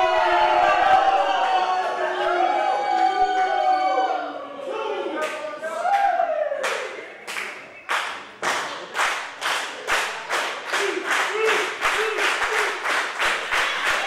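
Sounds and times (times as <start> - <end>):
crowd calling out: 0.0 - 7.1
rhythmic hand-clapping: 5.2 - 14.0.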